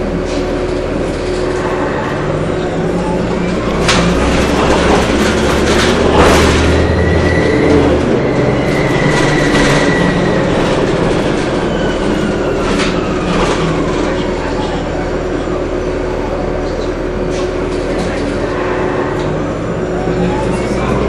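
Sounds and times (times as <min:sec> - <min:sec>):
low drivetrain drone: 0:00.0 - 0:21.0
bus body knocks and rattles: 0:03.6 - 0:11.8.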